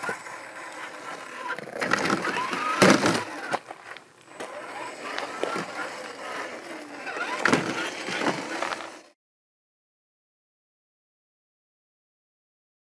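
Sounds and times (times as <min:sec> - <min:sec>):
electric motor whine: 0:00.0 - 0:09.2
tyres crunching on gravel: 0:00.0 - 0:09.2.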